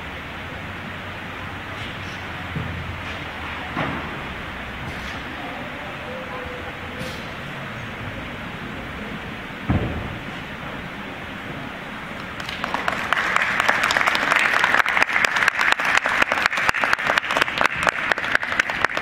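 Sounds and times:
audience applauding: 0:12.2 - 0:19.0
loud close single claps: 0:12.2 - 0:19.0.

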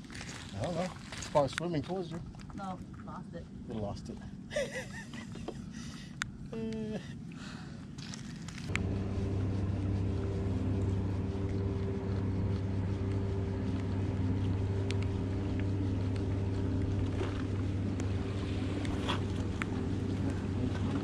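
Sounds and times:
boat engine running: 0:05.0 - 0:21.0.

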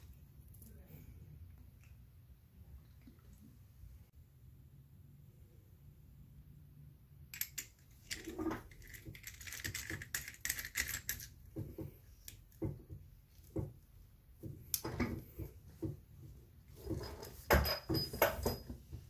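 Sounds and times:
small metal parts clicking and scraping: 0:07.3 - 0:11.4.

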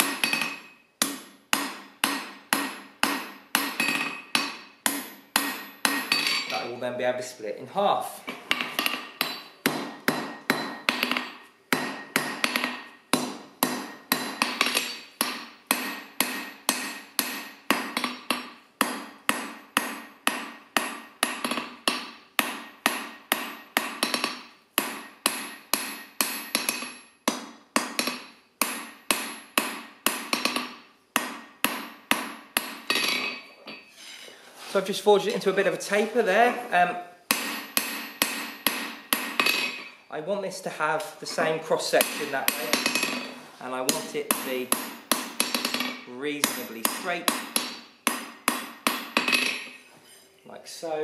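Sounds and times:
hammer striking steel on anvil: 0:00.0 - 0:06.6, 0:08.5 - 0:33.9, 0:37.3 - 0:40.1, 0:41.9 - 0:49.9
anvil ringing: 0:02.1 - 0:06.7, 0:27.9 - 0:33.9.

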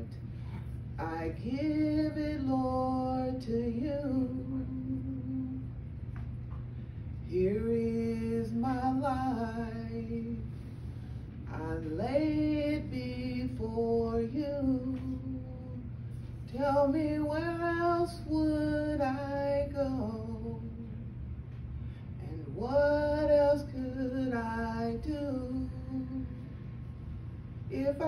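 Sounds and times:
steady low hum: 0:00.0 - 0:28.0
woman singing a hymn: 0:01.0 - 0:05.8, 0:07.3 - 0:10.5, 0:11.5 - 0:21.0, 0:22.2 - 0:26.4, 0:27.7 - 0:28.0.

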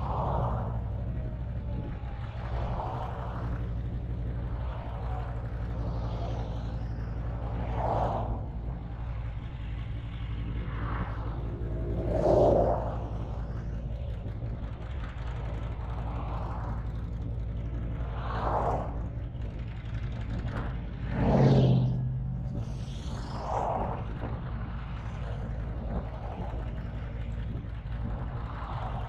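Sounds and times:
vehicles passing by: 0:00.0 - 0:29.0
motorcycle engine idling: 0:13.0 - 0:18.2, 0:18.8 - 0:21.0.

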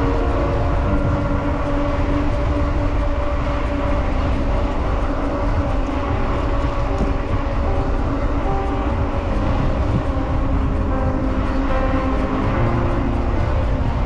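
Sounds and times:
background music of held notes: 0:00.0 - 0:14.0
wind rumble on microphone: 0:00.0 - 0:14.0.

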